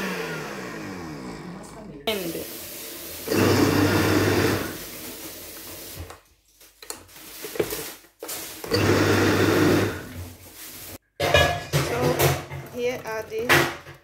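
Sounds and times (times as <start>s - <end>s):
blender motor chopping: 0.0s - 1.9s, 3.2s - 5.0s, 8.6s - 10.2s.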